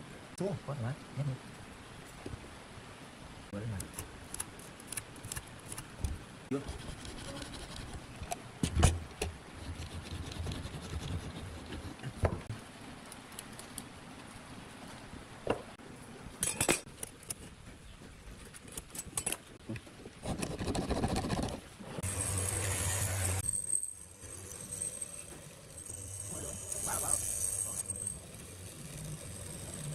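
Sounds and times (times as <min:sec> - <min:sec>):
steady hiss with high tone: 0:22.0 - 0:29.9.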